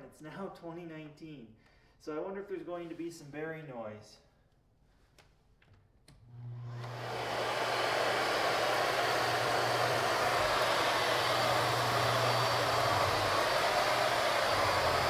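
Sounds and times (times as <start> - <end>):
vacuum cleaner running: 6.2 - 15.0.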